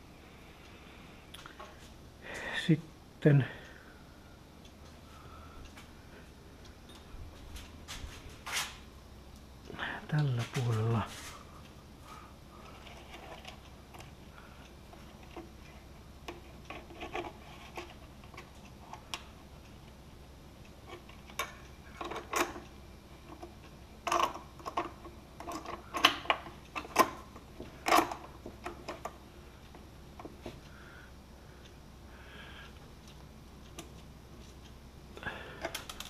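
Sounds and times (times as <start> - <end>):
wires being handled: 12.6 - 20.0, 20.7 - 30.7, 35.6 - 36.0
hands clicking and tapping parts: 20.9 - 30.6, 35.6 - 36.0.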